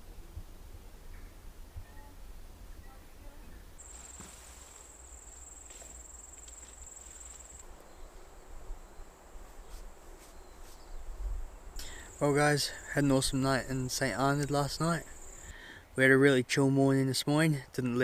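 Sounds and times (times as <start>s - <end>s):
insect trilling: 14.4s - 15.5s.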